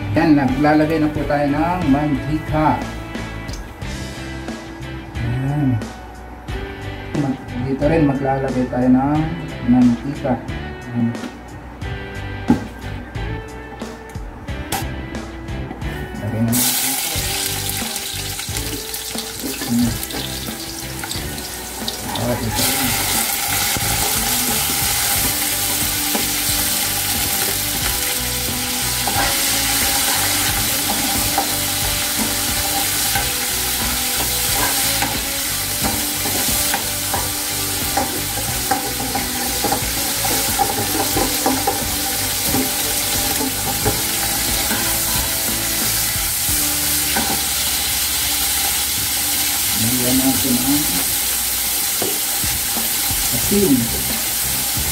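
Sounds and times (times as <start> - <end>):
garlic frying in hot oil: 16.6 - 54.9.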